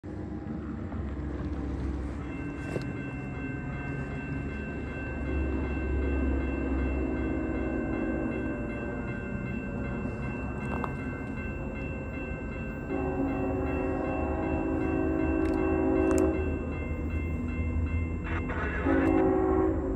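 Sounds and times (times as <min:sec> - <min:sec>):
freight train rumble: 0:00.0 - 0:19.9
crossing warning bell ringing: 0:00.2 - 0:19.9
distant train horn: 0:12.8 - 0:16.7, 0:18.1 - 0:19.9.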